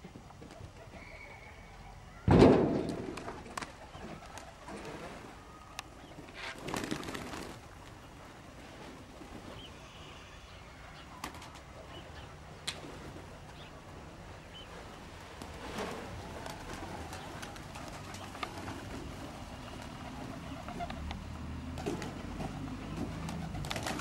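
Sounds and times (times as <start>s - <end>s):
faint bird chirps: 0.6s - 2.3s, 9.5s - 12.4s
pigeon wings flapping: 2.8s - 5.2s, 6.4s - 7.9s, 11.2s - 11.7s, 15.3s - 24.0s.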